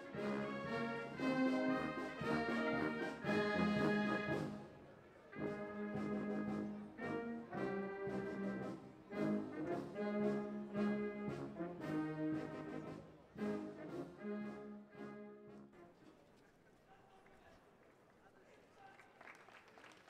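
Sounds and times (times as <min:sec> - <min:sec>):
wind band playing a tune: 0:00.0 - 0:16.0.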